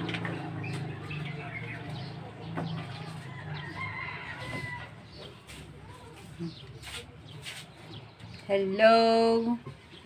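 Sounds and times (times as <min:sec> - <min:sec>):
rooster crowing: 0:03.0 - 0:05.0.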